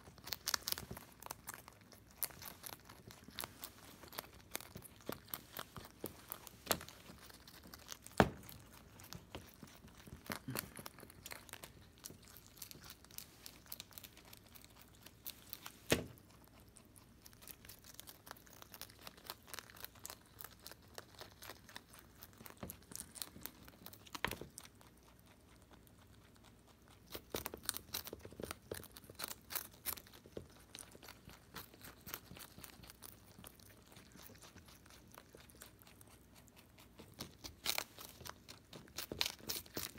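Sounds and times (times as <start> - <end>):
rabbit chewing cabbage: 0.0 - 39.9.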